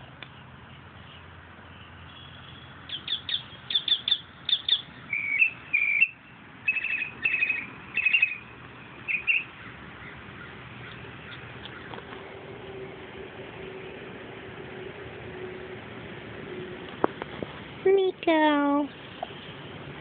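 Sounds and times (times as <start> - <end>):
raccoon chirping and trilling: 2.9 - 8.5, 9.1 - 12.0.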